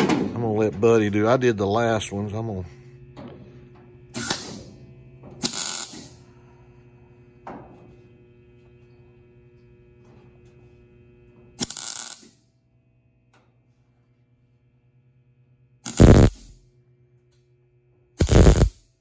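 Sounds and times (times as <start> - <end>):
steady electrical hum: 0.0 - 19.0
welding arc crackle: 4.2 - 4.6, 5.4 - 6.2, 11.6 - 12.4, 15.9 - 16.6, 18.2 - 18.8.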